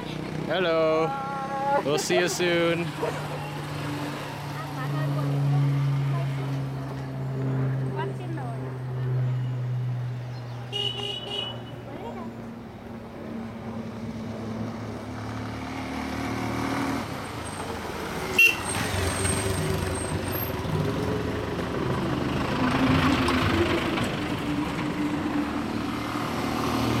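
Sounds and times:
motorcycle engines: 0:00.0 - 0:27.0
road noise: 0:00.0 - 0:27.0.

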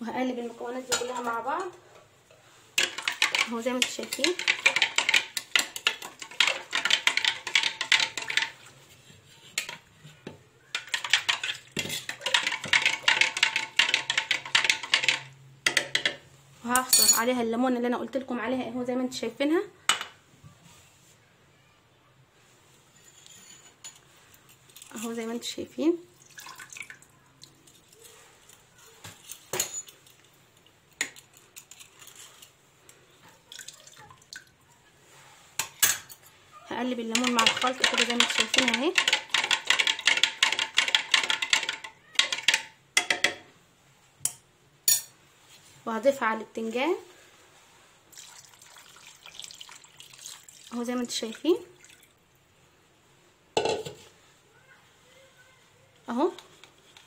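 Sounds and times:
spoon stirring in plastic jug: 0:00.7 - 0:16.1, 0:23.0 - 0:25.6, 0:26.2 - 0:34.3, 0:36.8 - 0:43.4
juice dripping into liquid: 0:26.2 - 0:27.6, 0:48.1 - 0:50.8.

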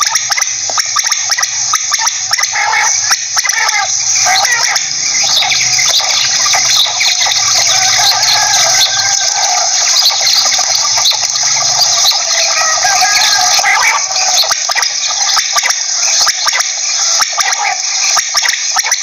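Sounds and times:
quail calling in chorus: 0:00.0 - 0:19.0.

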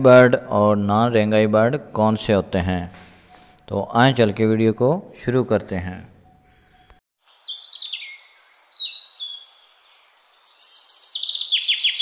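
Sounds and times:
lovebirds chirping: 0:03.0 - 0:04.1, 0:05.7 - 0:12.0.

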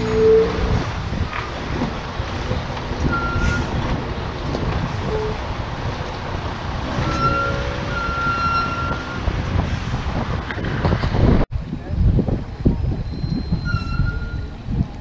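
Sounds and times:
high squeal: 0:00.0 - 0:00.7, 0:02.9 - 0:04.1, 0:06.8 - 0:09.4, 0:12.7 - 0:14.6
road noise: 0:00.0 - 0:15.0
truck engine rumble: 0:00.0 - 0:15.0.

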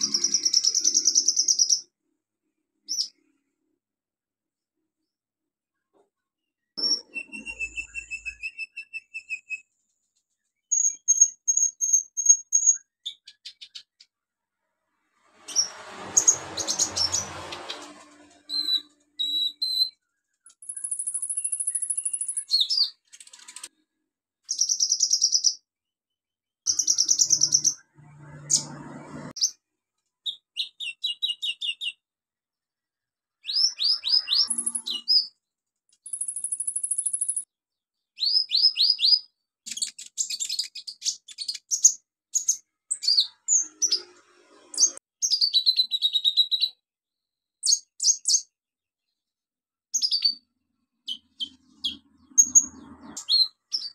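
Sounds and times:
sunbird singing high-pitched song: 0:00.0 - 0:01.9, 0:02.8 - 0:03.3, 0:06.5 - 0:09.8, 0:10.6 - 0:14.1, 0:16.6 - 0:23.7, 0:24.5 - 0:25.6, 0:26.7 - 0:29.6, 0:30.2 - 0:32.1, 0:33.4 - 0:35.4, 0:36.0 - 0:46.8, 0:47.6 - 0:49.2, 0:49.9 - 0:53.9.

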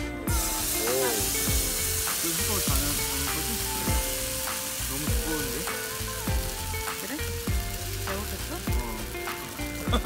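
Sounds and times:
batter sizzling in hot oil: 0:00.3 - 0:10.0.

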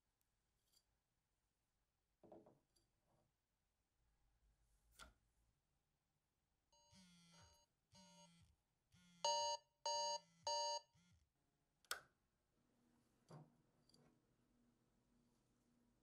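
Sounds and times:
alarm clock beeping: 0:06.8 - 0:08.4, 0:09.0 - 0:11.2.

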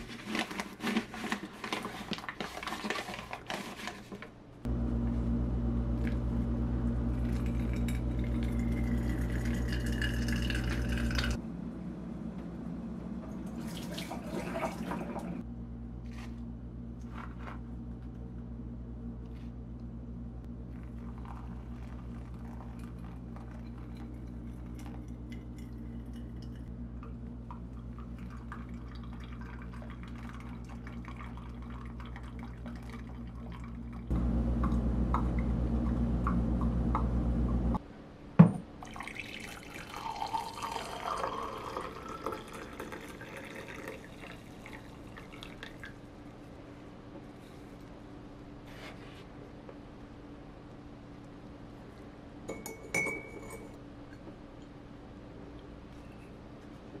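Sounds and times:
steady low hum: 0:04.5 - 0:38.8
water pouring and splashing: 0:13.6 - 0:15.4.

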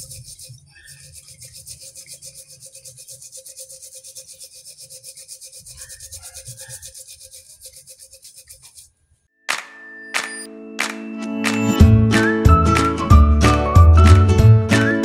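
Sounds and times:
scouring pad scrubbing glass jar: 0:00.0 - 0:08.9.

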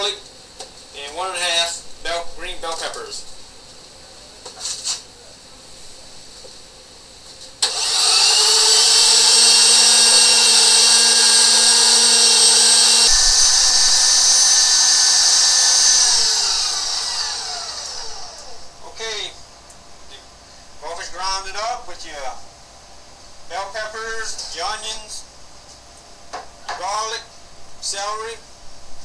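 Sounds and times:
electric meat grinder whining: 0:07.6 - 0:18.7.

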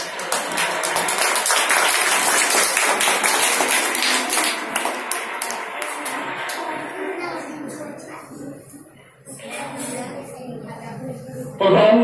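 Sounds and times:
crowd applauding: 0:00.0 - 0:07.9.

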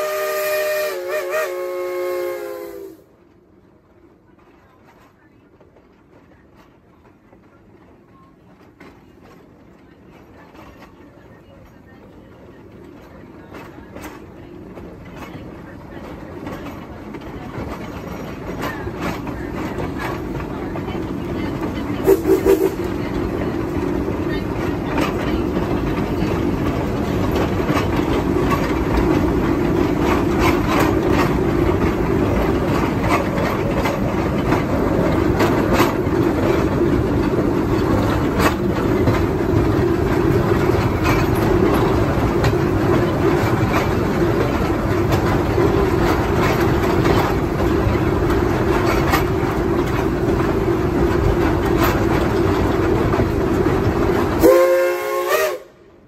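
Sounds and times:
train whistle: 0:00.0 - 0:03.1, 0:22.0 - 0:22.9, 0:54.4 - 0:55.8
wheels clicking on track: 0:00.0 - 0:55.9
steam train running: 0:00.0 - 0:56.0.

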